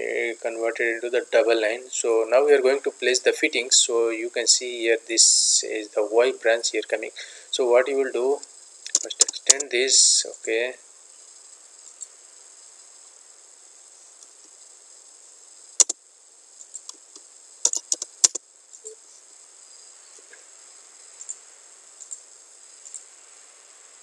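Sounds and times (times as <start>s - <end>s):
faint hiss: 0.0s - 24.0s
computer mouse and keyboard clicks: 8.9s - 9.7s, 16.6s - 19.0s.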